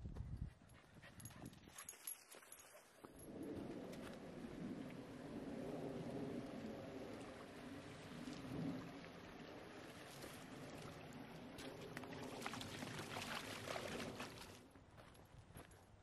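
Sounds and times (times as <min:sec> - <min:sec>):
stream running over rocks: 0:06.4 - 0:14.6
dog splashing through water: 0:11.6 - 0:14.6.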